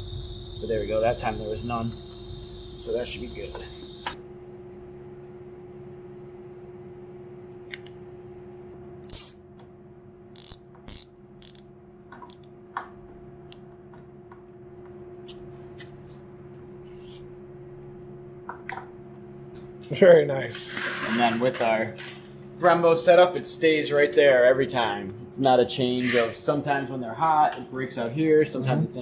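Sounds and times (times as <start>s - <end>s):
steady hum: 0.0s - 29.0s
screwdriver clicks and rattles: 10.4s - 11.6s, 12.3s - 12.5s.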